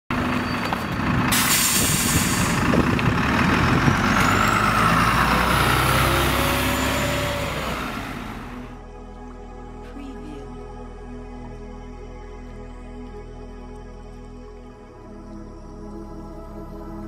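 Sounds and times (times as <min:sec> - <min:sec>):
bus engine whining: 0:00.1 - 0:08.8
air brake hiss: 0:01.3 - 0:02.7.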